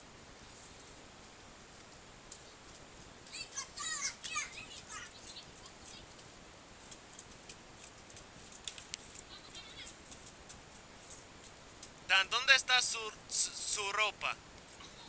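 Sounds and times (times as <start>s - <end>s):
light ticks: 5.8s - 12.0s.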